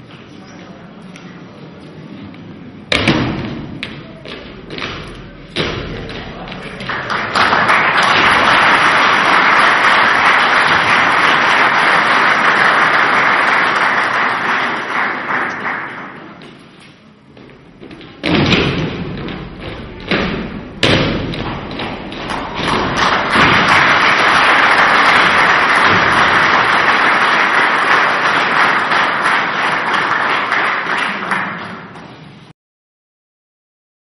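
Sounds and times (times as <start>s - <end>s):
feet stamping on wooden stage: 17.3s - 23.7s.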